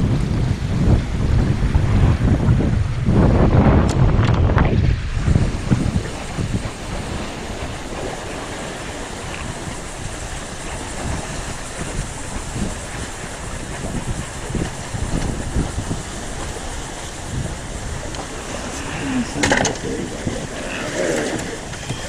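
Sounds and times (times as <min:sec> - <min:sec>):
sea waves: 0:00.0 - 0:22.0
wind buffeting microphone: 0:00.0 - 0:22.0.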